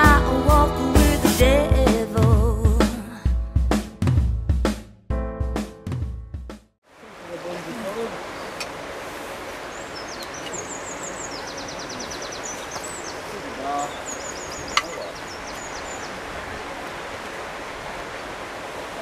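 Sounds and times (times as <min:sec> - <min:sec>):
outdoor background noise: 0:06.8 - 0:19.0.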